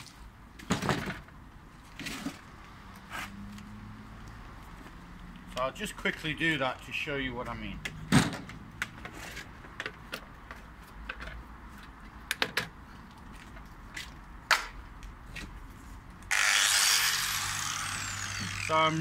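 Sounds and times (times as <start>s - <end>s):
handling cable reel and tools: 8.2s - 14.2s
angle grinder running: 16.3s - 19.0s.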